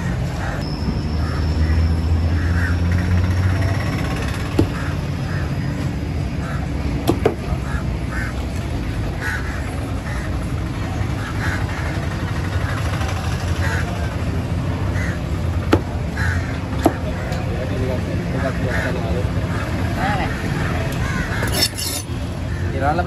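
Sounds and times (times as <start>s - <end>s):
cleaver chopping on wooden block: 7.1s - 7.4s.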